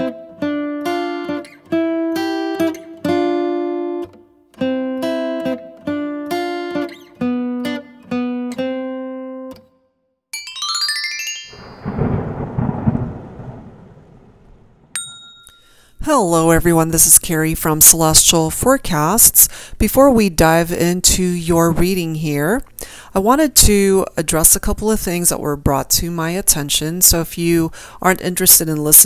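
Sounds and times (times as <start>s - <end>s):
plucked string melody: 0.0s - 9.6s, 10.4s - 12.2s
crackling thunder-like rumble: 11.6s - 15.0s.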